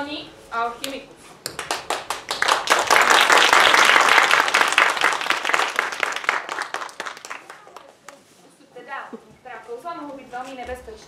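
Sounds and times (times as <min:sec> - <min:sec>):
audience applauding: 0:01.5 - 0:08.2.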